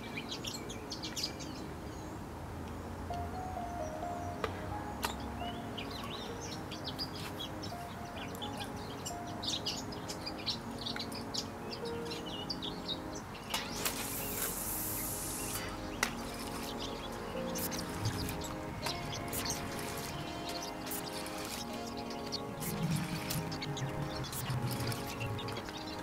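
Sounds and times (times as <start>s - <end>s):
soft background music: 0.0s - 26.0s
small birds chirping: 3.2s - 26.0s
rushing hiss of rod cast: 13.7s - 16.7s.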